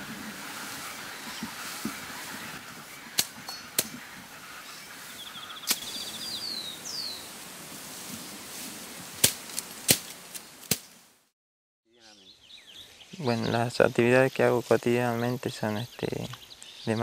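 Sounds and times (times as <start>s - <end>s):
grass rustling: 0.0s - 11.2s
machete chopping grass stems: 5.7s - 5.9s, 9.2s - 10.9s.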